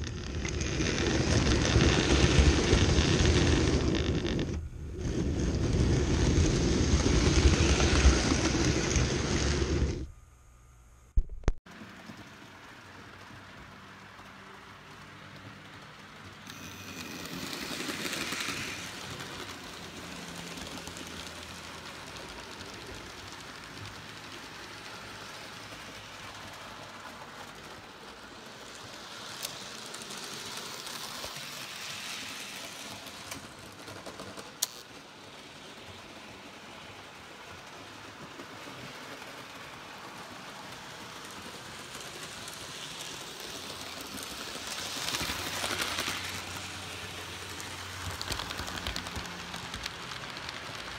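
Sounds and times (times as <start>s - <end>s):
model train whirring on track: 0.0s - 10.1s, 11.7s - 50.9s
wheels clicking on rail joints: 0.0s - 10.1s, 11.7s - 50.9s.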